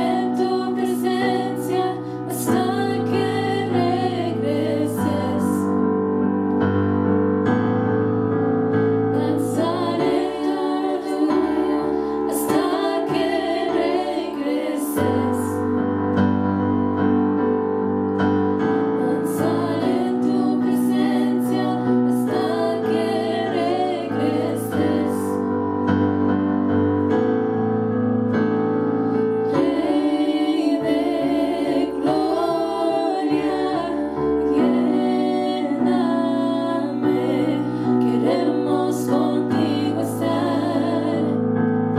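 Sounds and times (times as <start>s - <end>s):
women singing in harmony: 0.0s - 6.0s, 9.1s - 15.8s, 19.0s - 25.7s, 29.3s - 41.7s.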